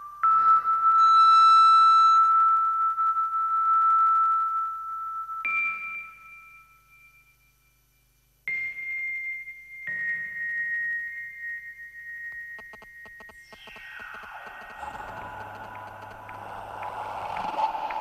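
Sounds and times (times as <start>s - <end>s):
ringing bell-like tones: 12.0s - 18.0s.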